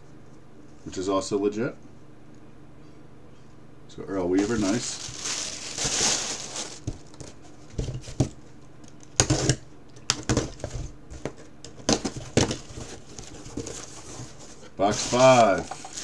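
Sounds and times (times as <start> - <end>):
taps and knocks on cardboard boxes: 9.2 - 13.9.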